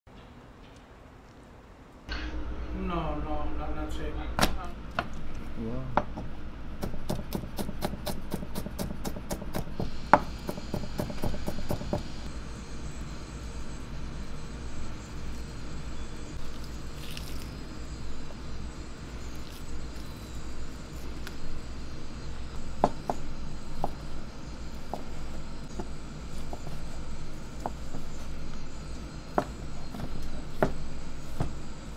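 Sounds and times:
knife chopping cooked chicken: 6.0s - 12.0s
knife chopping on cutting board: 6.0s - 12.1s, 22.8s - 24.1s, 29.3s - 31.6s.

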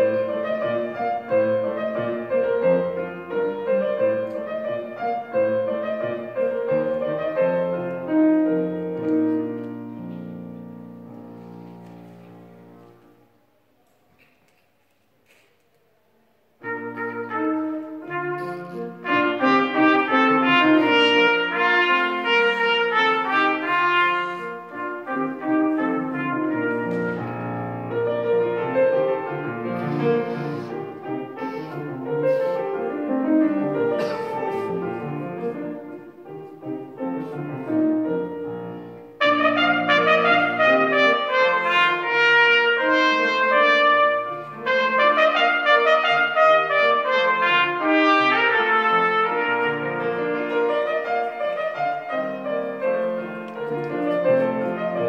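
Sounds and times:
grand piano accompaniment: 0.0s - 14.6s, 15.3s - 55.0s
solo trumpet playing: 16.6s - 36.1s, 39.2s - 55.0s.

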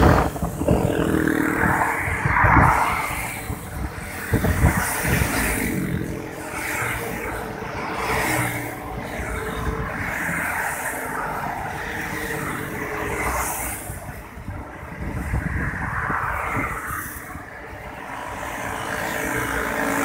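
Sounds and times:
vehicle engine and road noise: 0.0s - 20.0s.

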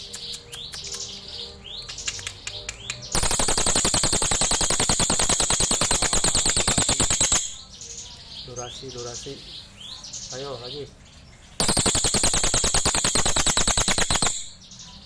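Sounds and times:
bird chirps: 0.0s - 15.0s
bird rapid rattle: 3.2s - 7.6s, 11.6s - 14.6s.

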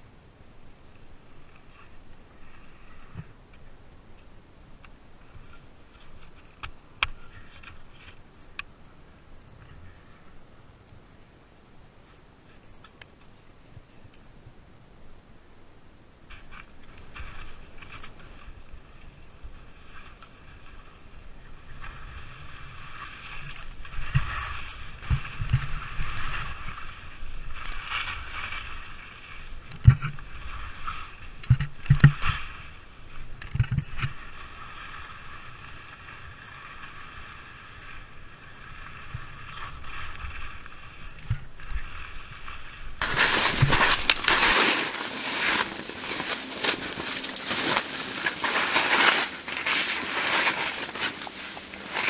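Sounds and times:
wind: 0.0s - 52.0s
skis scraping on snow: 17.0s - 31.4s, 41.8s - 52.0s
dull thumps of skis landing: 43.0s - 52.0s
rush of snow spray: 43.0s - 52.0s.

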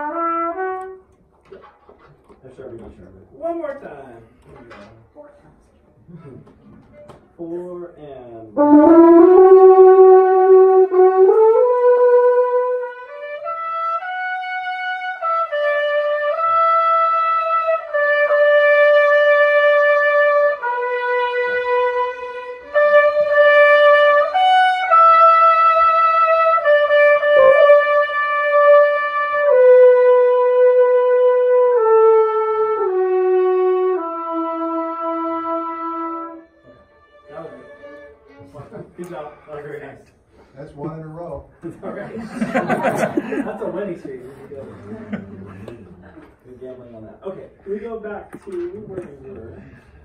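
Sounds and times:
brass melody of held notes: 0.0s - 2.0s, 8.4s - 38.5s.

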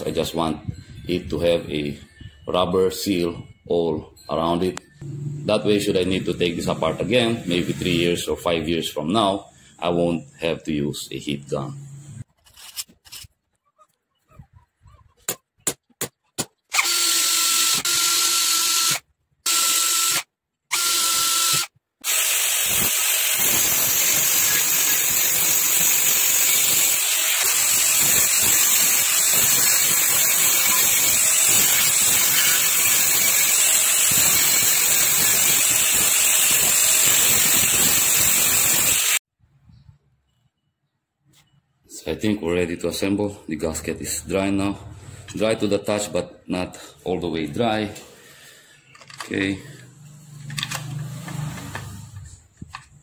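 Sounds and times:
angle grinder grinding metal: 5.0s - 8.6s, 16.7s - 39.2s, 49.3s - 52.4s.

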